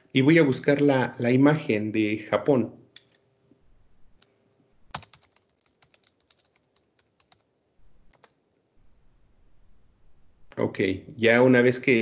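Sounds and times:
typing on a keyboard: 4.9s - 7.5s, 8.1s - 8.4s.

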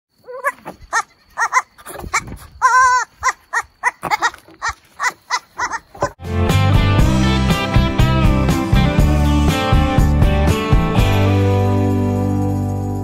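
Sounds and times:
goat kids bleating: 0.3s - 6.0s
guitar music: 6.2s - 13.0s.

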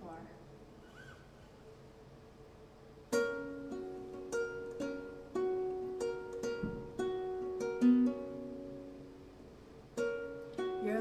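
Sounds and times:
fingerpicked nylon-string guitar: 3.0s - 11.0s.

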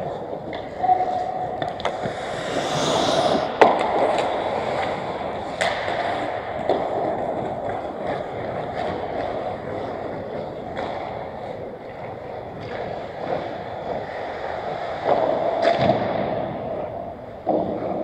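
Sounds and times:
hockey sticks and puck clacking: 0.0s - 18.0s
skate blades scraping ice: 0.1s - 11.7s.

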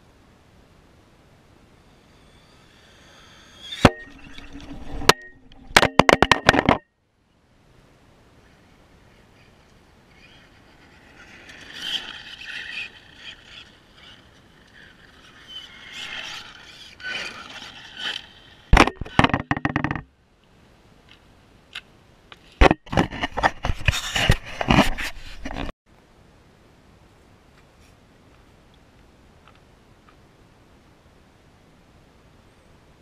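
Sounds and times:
knocks and scrapes: 3.6s - 6.8s, 10.2s - 20.1s, 22.3s - 25.8s
camera scraping against grass: 9.4s - 20.0s, 22.4s - 25.7s.

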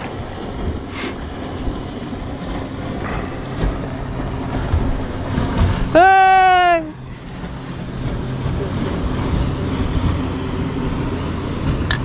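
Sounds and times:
motorboat engine humming: 0.0s - 12.0s.

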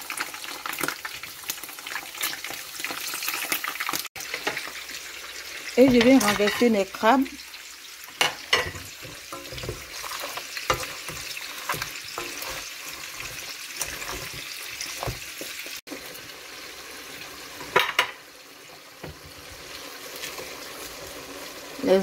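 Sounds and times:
food sizzling in a wok: 0.0s - 22.0s
wooden spatula knocking on pan: 13.2s - 15.5s.

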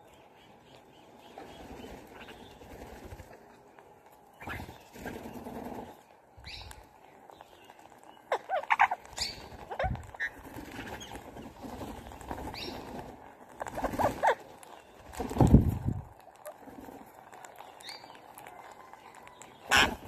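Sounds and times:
parakeets screeching: 8.3s - 11.2s, 19.2s - 20.0s.

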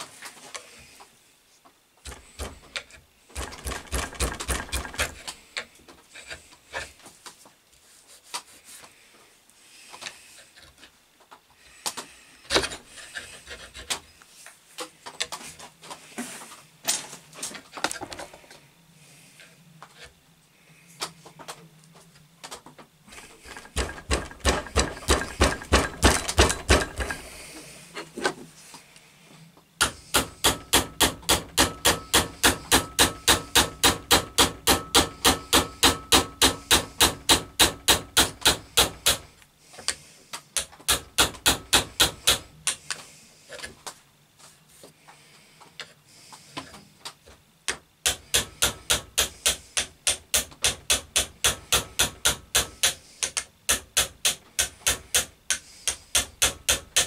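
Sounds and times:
hand saw cutting wood: 29.8s - 39.2s.

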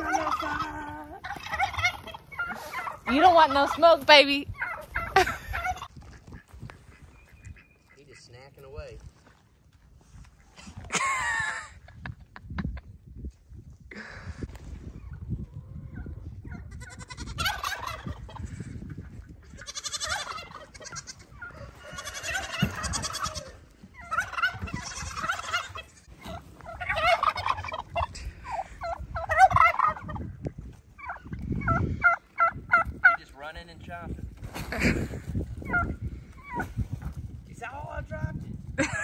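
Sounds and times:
turkeys gobbling: 0.0s - 8.3s, 15.9s - 33.4s, 35.3s - 36.9s
short turkey calls: 19.6s - 30.2s.

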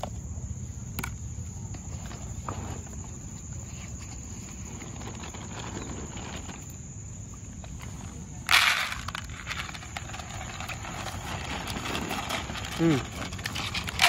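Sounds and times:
dogs crunching food: 7.7s - 14.0s
dry dog food poured into bowl: 8.4s - 11.2s.

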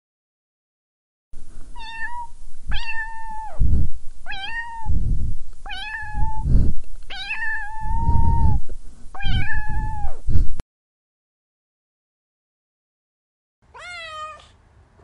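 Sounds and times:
low rumbling noise bursts: 1.4s - 10.6s
cat meowing: 1.8s - 3.6s, 4.3s - 4.9s, 5.7s - 6.4s, 7.1s - 8.6s, 9.2s - 10.2s, 13.7s - 14.6s.

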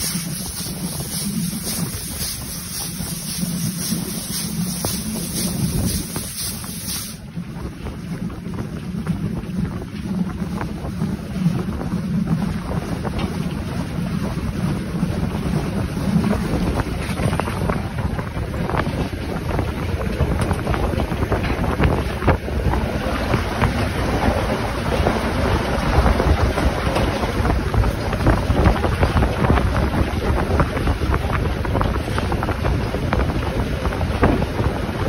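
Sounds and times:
steam hissing: 0.0s - 7.2s
steam locomotive exhaust beats: 0.0s - 35.0s
wind buffeting microphone: 0.0s - 35.0s.

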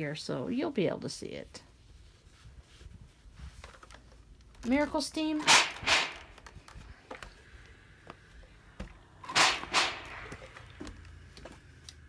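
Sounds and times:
steam iron hissing: 9.3s - 10.6s.

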